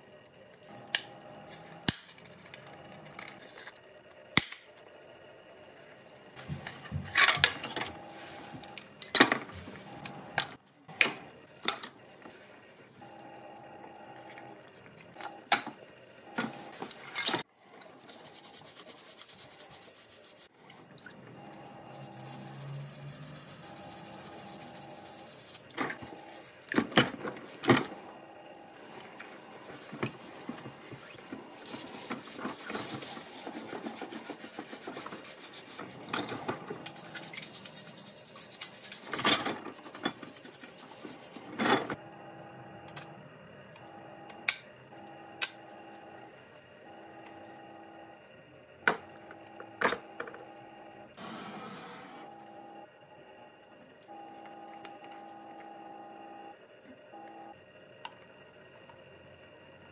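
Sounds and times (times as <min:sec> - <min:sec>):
hands scrubbing parts in liquid: 0:14.0 - 0:28.1, 0:28.7 - 0:41.6.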